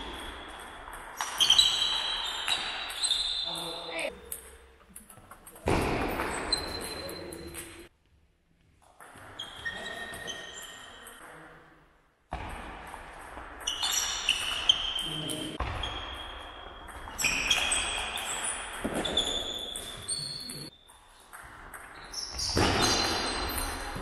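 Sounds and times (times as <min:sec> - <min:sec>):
shoes squeaking on floor: 0:00.0 - 0:04.1, 0:06.3 - 0:07.9, 0:09.2 - 0:11.2, 0:13.6 - 0:24.0.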